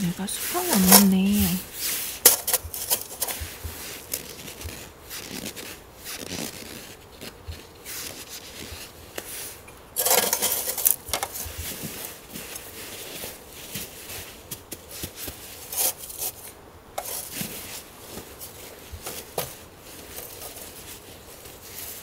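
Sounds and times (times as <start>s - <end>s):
rubbing scrape: 0.0s - 22.0s
metal stand clinking: 10.0s - 11.3s.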